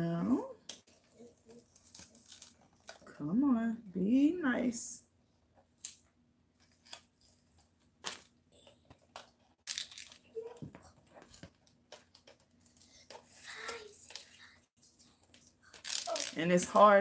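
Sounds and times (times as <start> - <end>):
plastic mesh crinkling and rustling: 0.8 - 3.2, 6.6 - 17.0.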